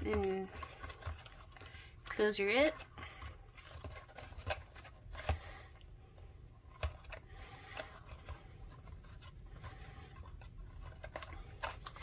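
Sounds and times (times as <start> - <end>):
ribbon and paper rustling: 0.0 - 5.6.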